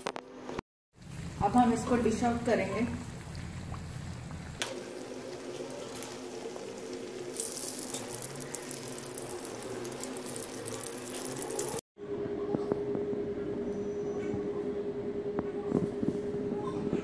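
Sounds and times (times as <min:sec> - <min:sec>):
oil sizzling and bubbling: 0:00.9 - 0:11.8.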